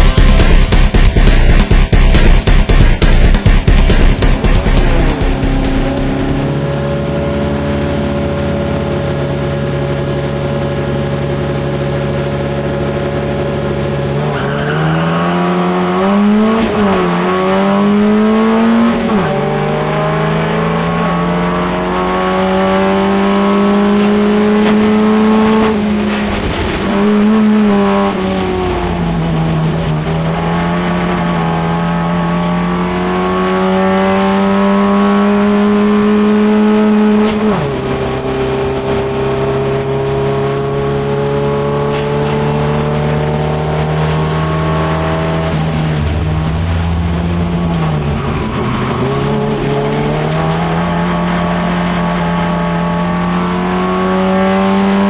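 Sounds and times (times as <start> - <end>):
race car engine revving: 0.0 - 55.0.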